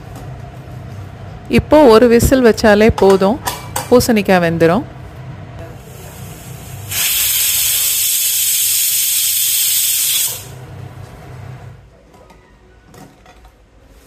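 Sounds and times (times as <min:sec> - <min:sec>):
pressure cooker whistling: 0:06.8 - 0:10.6.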